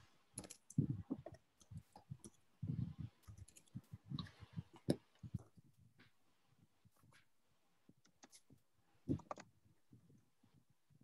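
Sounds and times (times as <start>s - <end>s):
computer mouse and keyboard clicking: 3.2s - 5.5s, 9.1s - 9.5s.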